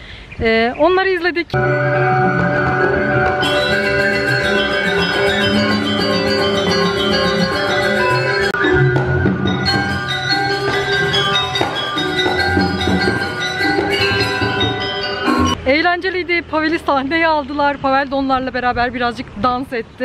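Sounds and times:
gamelan metallophones chiming: 1.6s - 15.7s
deep ringing bass: 1.6s - 16.6s.

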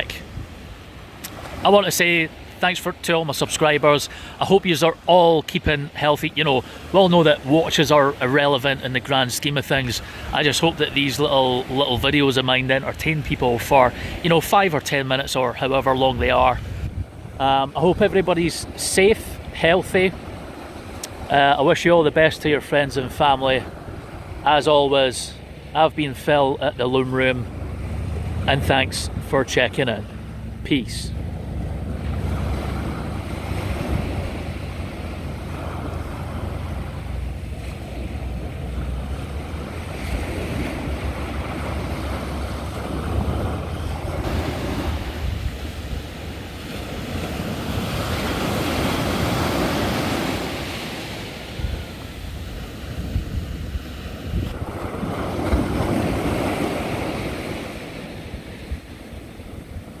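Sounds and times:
waves washing onto beach: 0.0s - 60.0s
wind buffeting microphone: 16.1s - 18.8s, 27.4s - 50.1s, 50.9s - 60.0s.

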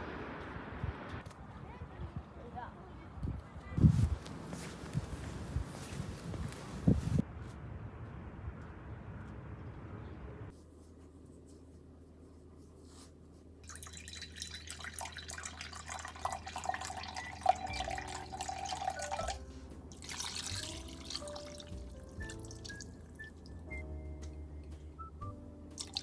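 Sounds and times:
liquid trickling into a jug: 13.6s - 22.9s, 25.8s - 26.0s
soft background music: 15.0s - 26.0s.

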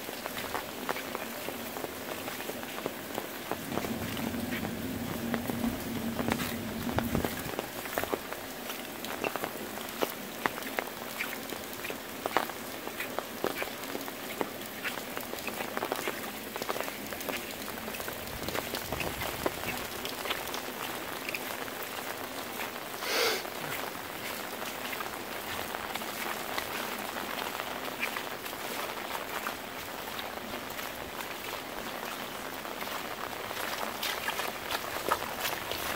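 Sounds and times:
rain on wet pavement: 0.0s - 35.9s
sharp drip ticks: 0.2s - 22.9s.

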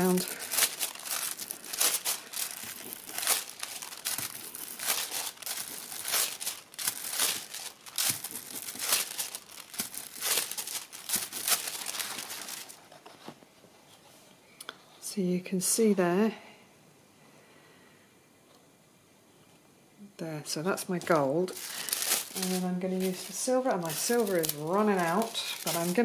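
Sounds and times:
foil crinkling and rustling: 0.0s - 13.2s, 20.8s - 26.0s.

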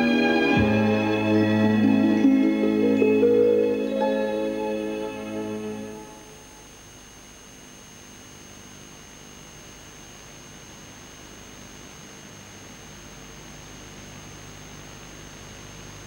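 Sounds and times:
low hum: 0.0s - 6.8s
thin high-pitched whine: 0.0s - 6.9s
steady background hiss: 0.0s - 16.0s.

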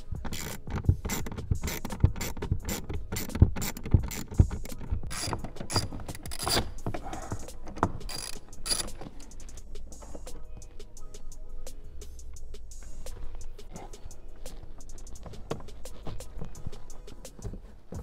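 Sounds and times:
hand ratchet clicking: 0.0s - 10.5s.

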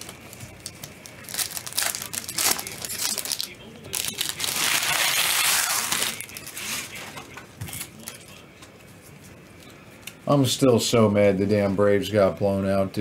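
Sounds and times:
plastic wrapper crinkling: 0.0s - 7.0s.

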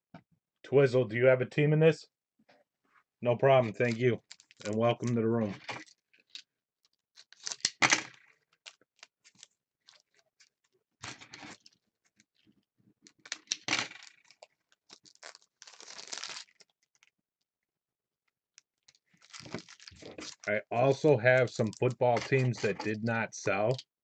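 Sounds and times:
foil card pack crinkling: 3.6s - 6.4s, 7.2s - 10.2s, 13.2s - 17.1s, 18.9s - 23.8s.

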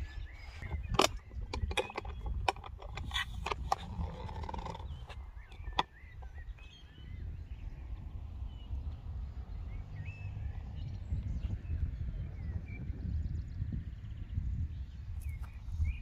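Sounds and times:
wind rumbling on microphone: 0.0s - 16.0s
phone handling clicks and knocks: 0.9s - 4.8s.

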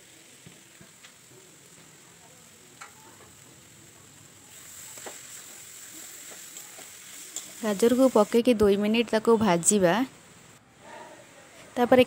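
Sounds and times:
vegetables sizzling in a pan: 0.0s - 10.6s.

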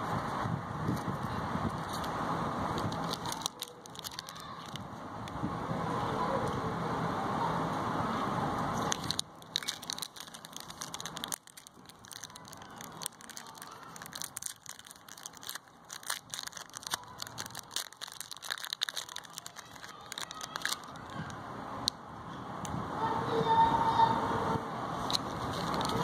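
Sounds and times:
candy wrappers crinkling and tearing: 1.2s - 4.9s, 8.8s - 21.3s, 25.0s - 26.0s.

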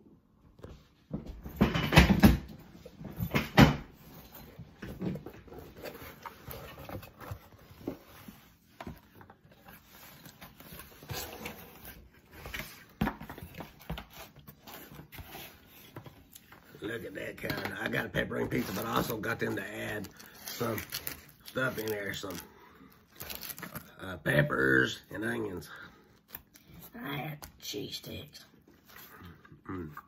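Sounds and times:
cardboard rustling: 4.0s - 24.0s.

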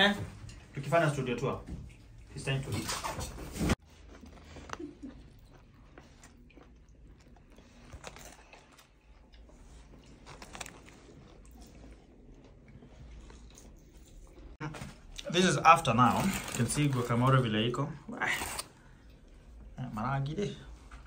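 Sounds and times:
people chewing and biting: 3.6s - 15.3s.

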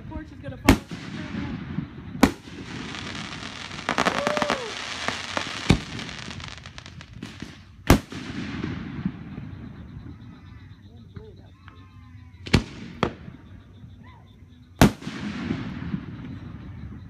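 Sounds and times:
fireworks bangs: 0.0s - 10.3s, 12.4s - 13.4s, 14.8s - 17.0s
fireworks crackling: 0.0s - 10.3s, 14.8s - 17.0s.

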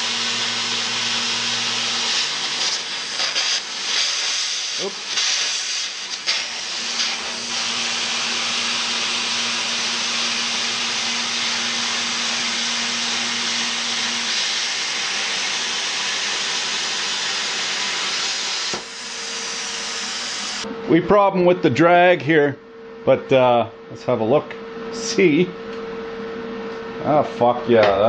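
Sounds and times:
plasma cutter hissing: 0.0s - 20.6s.

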